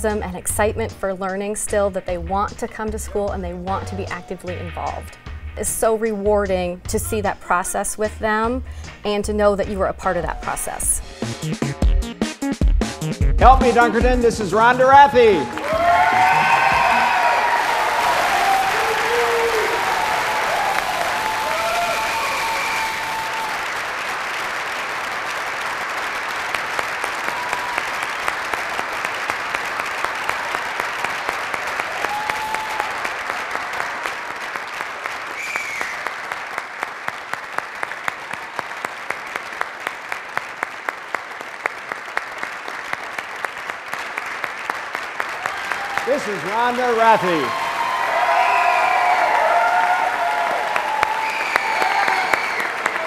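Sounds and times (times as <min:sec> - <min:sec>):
audience applauding: 0:13.6 - 0:53.0
crowd shouting: 0:15.4 - 0:23.6.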